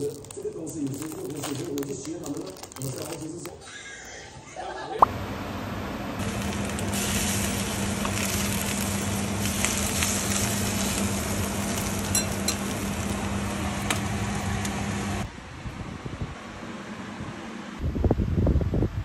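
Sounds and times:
ham and egg sizzling in pan: 5.8s - 15.2s.

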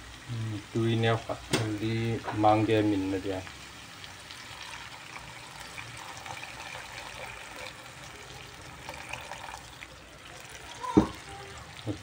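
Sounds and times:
water pouring into frying pan: 2.6s - 12.0s.

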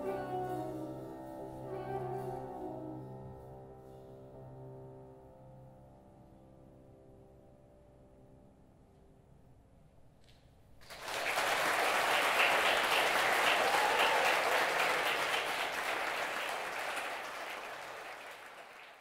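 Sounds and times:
audience applauding: 10.8s - 19.0s.

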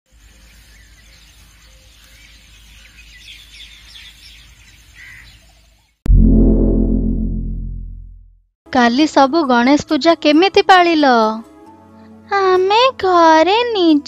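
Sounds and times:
small birds tweeting: 0.1s - 6.0s
deep ringing strike: 6.1s - 8.3s
low hum: 6.1s - 8.3s.

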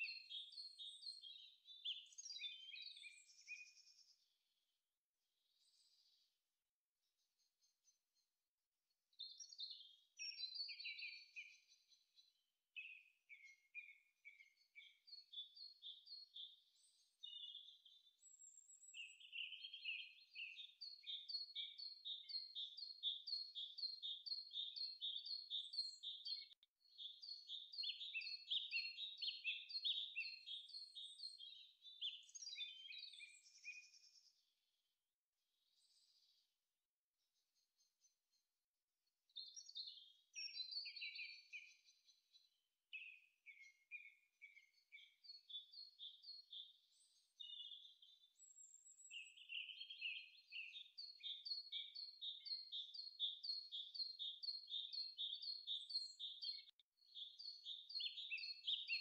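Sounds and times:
bird chirping: 0.0s - 4.2s, 9.2s - 34.4s, 39.3s - 59.0s.

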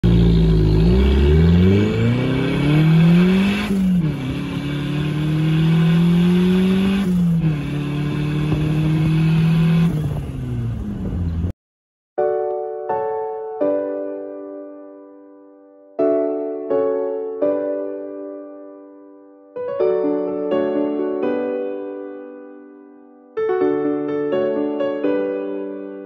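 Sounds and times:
car engine accelerating: 0.0s - 11.5s
piano note: 12.2s - 26.0s.

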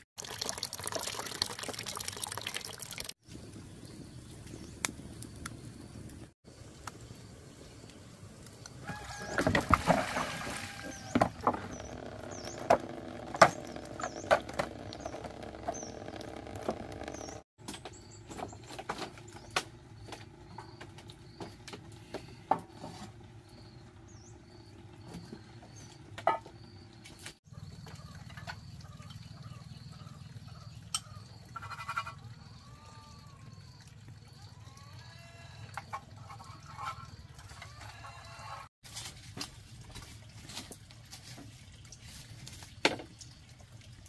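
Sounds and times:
small birds chirping: 11.0s - 22.5s.

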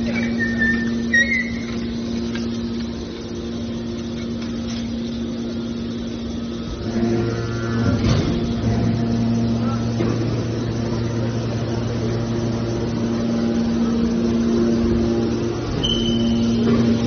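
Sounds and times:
baler machine hum: 0.0s - 17.0s.

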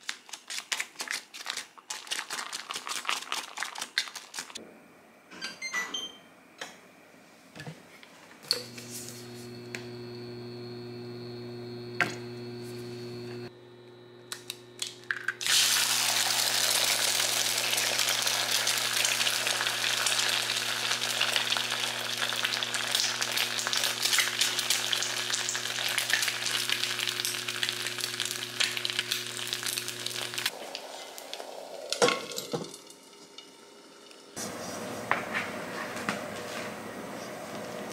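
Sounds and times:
induction hob humming whine: 4.6s - 37.9s
egg sizzling in frying pan: 15.4s - 34.4s.

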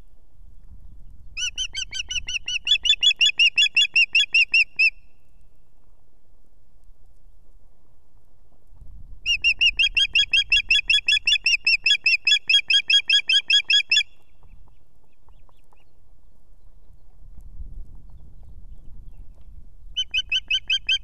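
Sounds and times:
osprey piping whistles: 9.3s - 14.3s, 19.9s - 21.0s.

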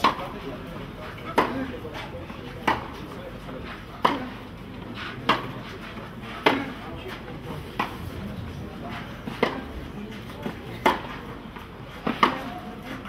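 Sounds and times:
tennis racquets hitting ball: 0.0s - 0.2s, 1.3s - 1.6s, 2.6s - 3.1s, 4.0s - 8.2s, 9.2s - 12.6s.

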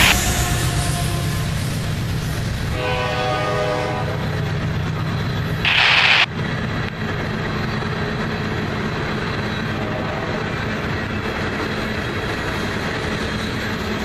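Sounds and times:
distant train horn: 0.0s - 1.7s, 2.7s - 4.5s, 9.7s - 10.5s
train wheels rumbling on rails: 0.0s - 14.0s
loud hiss: 5.6s - 6.3s.

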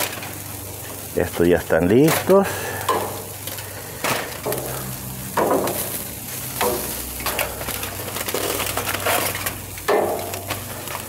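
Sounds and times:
aluminium foil crinkling: 0.0s - 11.0s
meat sizzling on a grill: 0.0s - 11.0s
metal tongs clacking: 2.9s - 3.3s, 4.4s - 11.0s.

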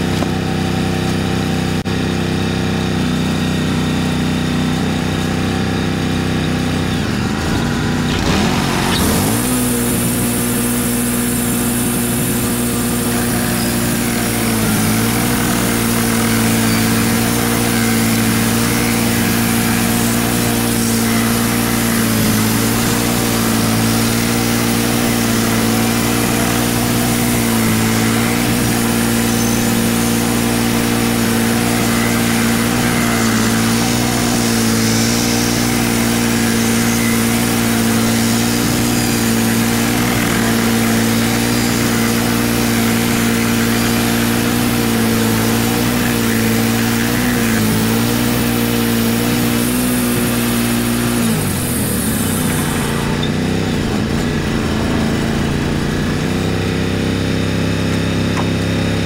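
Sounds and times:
sawmill engine running: 0.0s - 59.0s
band blade sawing hiss: 7.4s - 56.0s.

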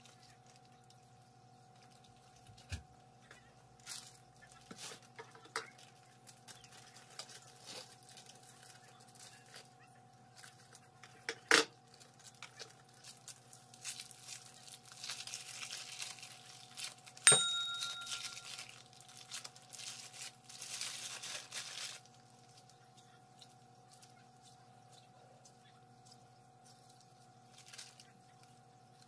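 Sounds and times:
plastic bag crinkling: 3.8s - 9.7s, 11.8s - 22.8s, 26.0s - 29.0s
metallic clink: 17.3s - 18.6s.

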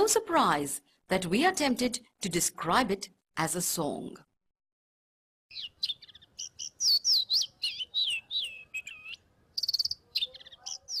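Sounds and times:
bird singing whistled notes: 5.5s - 11.0s
buzzy bird trill: 5.5s - 11.0s.

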